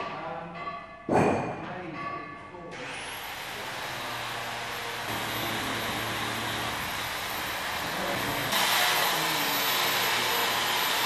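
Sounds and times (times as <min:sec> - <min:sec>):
workshop hum and hiss: 0:02.7 - 0:11.0
power tool grinding steel: 0:02.8 - 0:11.0.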